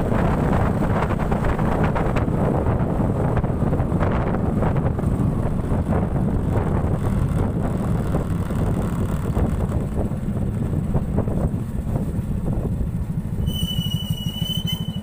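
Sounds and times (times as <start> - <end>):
wind buffeting microphone: 0.0 - 13.5
road noise: 0.0 - 15.0
vehicle engine: 0.0 - 15.0.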